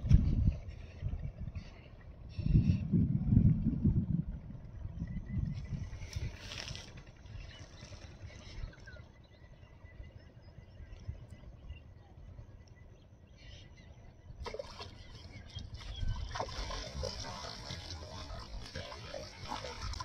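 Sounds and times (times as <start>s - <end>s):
low steady rumble: 0.0s - 20.0s
water splashing: 14.4s - 20.0s.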